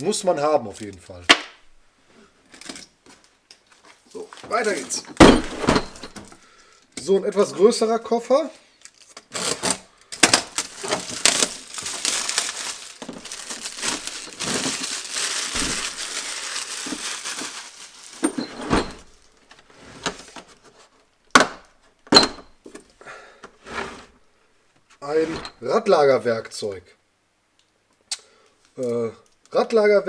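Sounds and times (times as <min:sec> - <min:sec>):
plastic wrap crackling: 0:03.2 - 0:05.1, 0:08.8 - 0:20.4.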